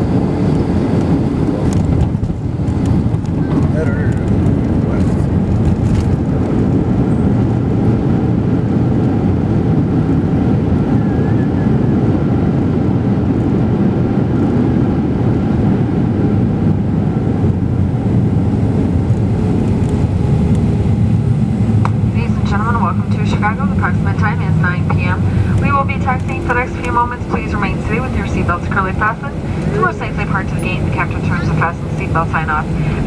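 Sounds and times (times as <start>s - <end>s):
jet engines roaring: 0.0s - 33.0s
rushing air: 24.4s - 30.0s, 32.6s - 33.0s.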